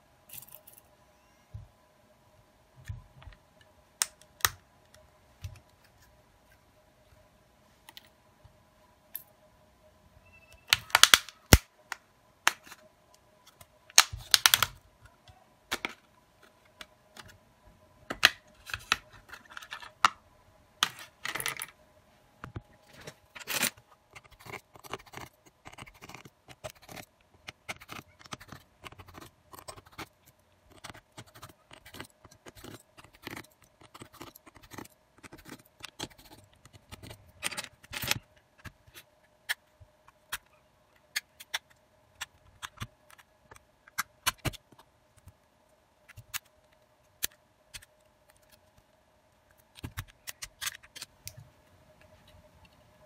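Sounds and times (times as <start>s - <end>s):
faint steady hum: 0.0s - 53.0s
plastic cover clicks and snaps: 10.7s - 11.7s, 13.9s - 14.8s.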